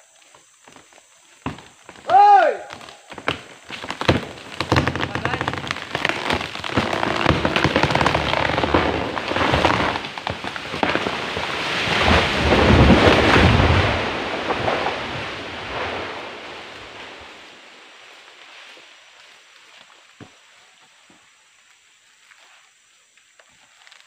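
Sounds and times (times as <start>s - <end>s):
wood cracking and snapping: 1.4s - 15.4s
tree crashing through branches: 1.4s - 17.8s.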